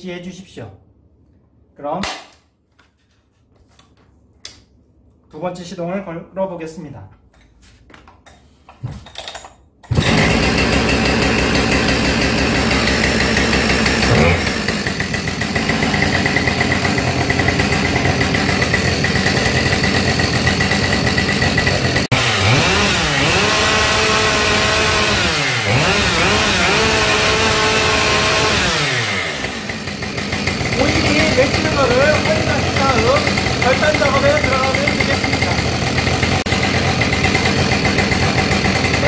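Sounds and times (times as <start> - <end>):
starter cord pulls: 9.8 - 22.1, 28.3 - 39.0
chainsaw engine idling and revving: 9.9 - 39.0.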